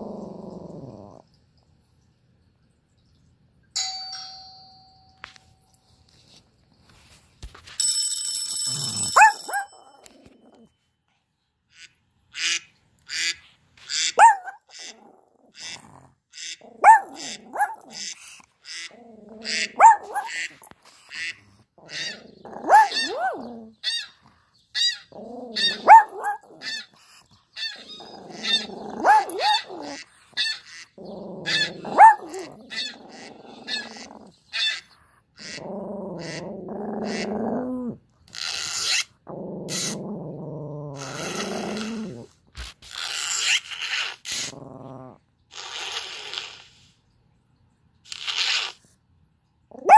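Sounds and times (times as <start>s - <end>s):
dog growling: 0.0s - 1.4s, 8.8s - 10.7s, 14.2s - 24.4s, 25.1s - 46.6s
dog barking through speaker: 9.2s - 9.8s, 14.0s - 14.8s, 16.8s - 18.0s, 19.4s - 20.6s, 21.9s - 23.4s, 25.6s - 26.7s, 28.5s - 29.7s, 31.4s - 32.4s.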